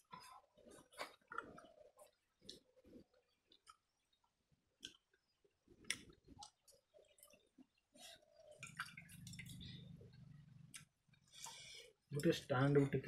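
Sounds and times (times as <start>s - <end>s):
chewing: 0.1s - 5.2s
low steady hum: 8.0s - 11.6s.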